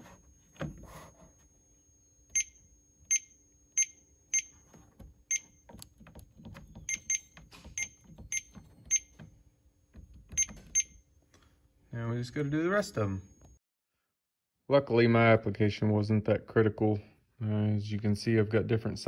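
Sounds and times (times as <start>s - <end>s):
keypad beeps: 5.3s - 5.7s, 6.7s - 9.2s, 10.3s - 11.0s.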